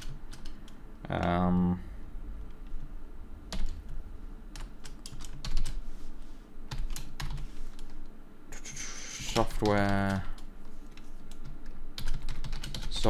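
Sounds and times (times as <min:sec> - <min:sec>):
computer keyboard typing: 0:00.0 - 0:00.7, 0:03.5 - 0:03.9, 0:04.6 - 0:05.8, 0:06.7 - 0:08.0, 0:08.6 - 0:13.0.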